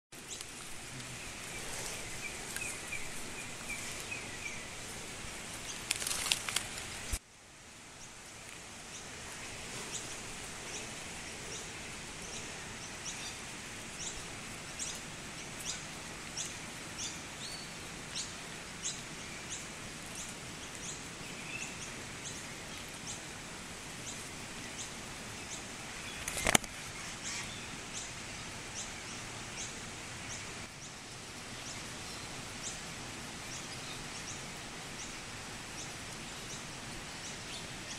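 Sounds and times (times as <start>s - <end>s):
outdoor background hiss: 0.1s - 37.9s
rustling clicks: 5.7s - 7.2s.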